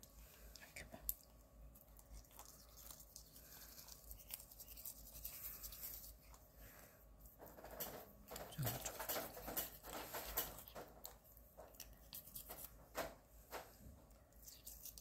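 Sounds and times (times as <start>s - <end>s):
toothbrush scrubbing teeth: 1.8s - 6.5s, 8.5s - 12.8s, 14.4s - 15.0s.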